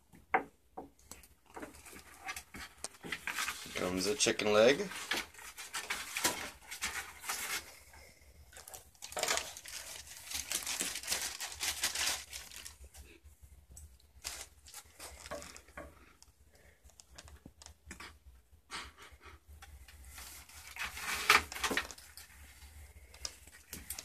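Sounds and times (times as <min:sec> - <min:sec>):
claws scrabbling on wooden boards: 0:00.2 - 0:07.7, 0:20.2 - 0:24.0.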